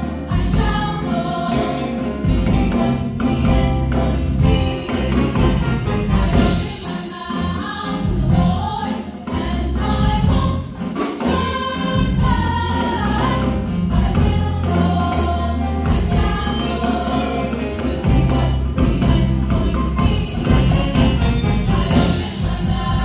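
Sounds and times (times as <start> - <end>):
sustained bass notes: 0.0 - 6.7, 11.4 - 23.0
choir singing in harmony: 0.0 - 23.0.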